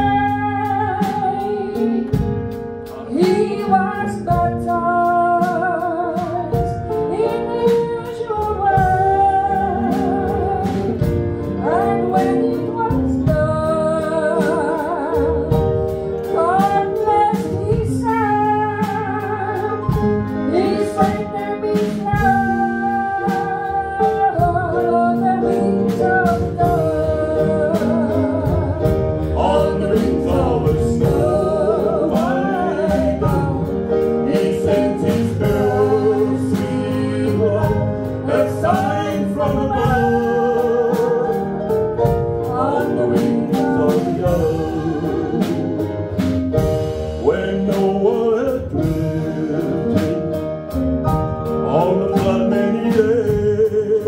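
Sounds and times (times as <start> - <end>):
woman singing: 0.0 - 2.3, 2.9 - 46.2
man singing: 29.3 - 41.7, 42.5 - 46.3, 47.2 - 50.5, 51.5 - 54.0.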